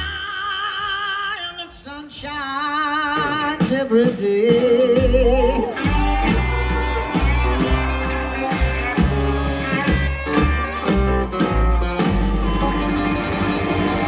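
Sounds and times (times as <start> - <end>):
acoustic and electric guitars: 3.2 - 14.0
upright bass notes: 4.9 - 14.0.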